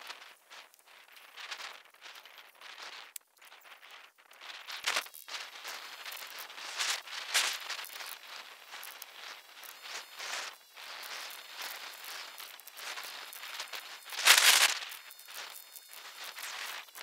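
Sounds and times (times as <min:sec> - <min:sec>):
roof underlayment rustling and crackling: 0:00.0 - 0:13.5.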